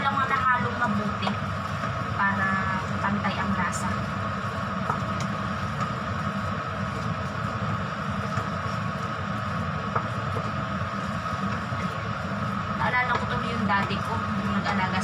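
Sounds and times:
steady machine hum: 0.0s - 15.0s
wooden spatula knocking on pot: 13.0s - 14.1s.

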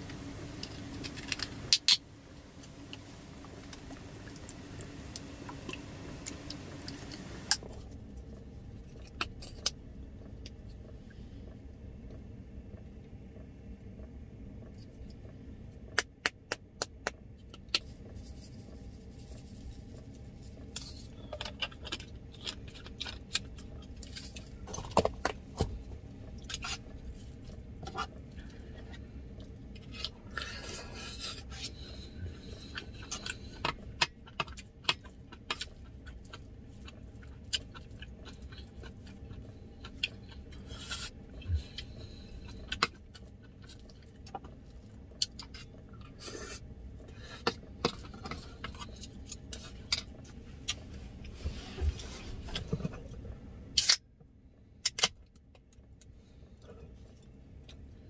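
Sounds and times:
low steady hum: 0.0s - 58.0s.

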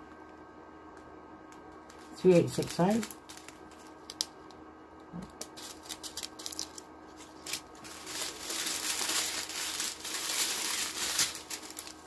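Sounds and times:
plastic crinkling: 1.8s - 4.6s, 5.2s - 12.0s.

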